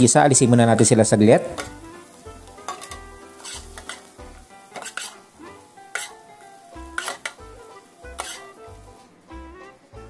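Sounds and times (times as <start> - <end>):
background music: 0.0 - 10.0
spatula scraping frying pan: 1.4 - 9.0.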